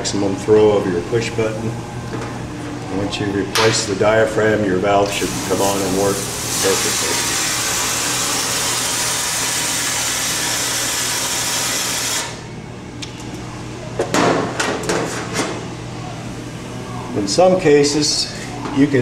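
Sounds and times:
water spraying into metal sink: 5.2s - 12.4s.

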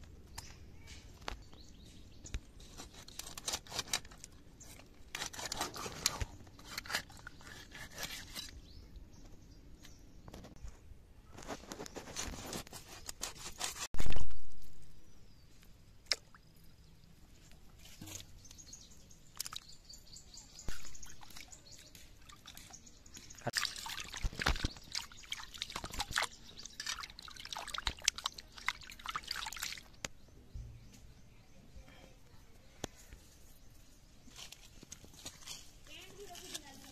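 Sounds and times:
water splashing in metal pot: 23.5s - 29.9s.

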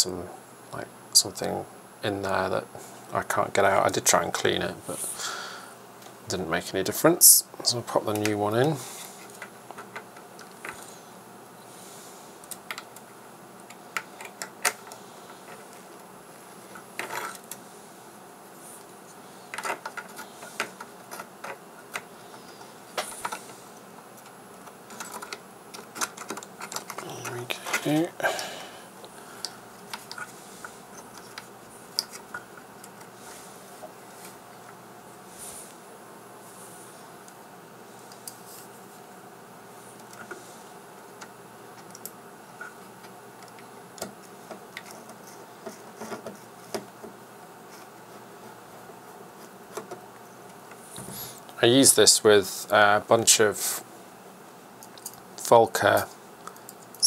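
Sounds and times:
faint background hiss: 0.0s - 57.0s
fingers clicking and tapping wires: 12.4s - 16.1s, 19.5s - 23.6s, 24.2s - 28.1s, 41.0s - 48.2s.

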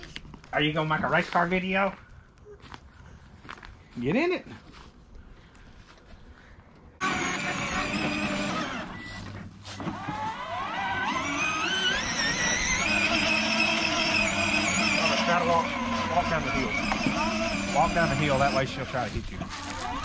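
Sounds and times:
toy car engine sound effect: 7.0s - 9.2s, 9.8s - 20.0s.

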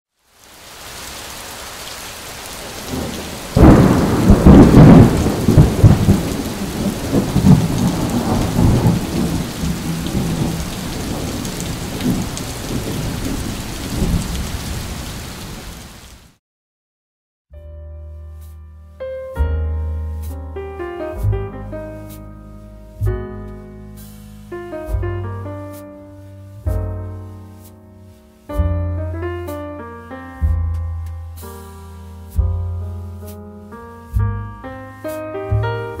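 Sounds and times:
steady rain: 0.1s - 16.4s, 21.6s - 29.6s, 31.3s - 34.2s
thunder crashing and rumbling: 2.6s - 15.6s.

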